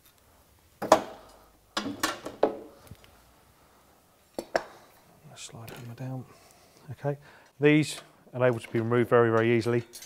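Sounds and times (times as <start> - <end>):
metal tools clinking and knocking: 9.8 - 10.0.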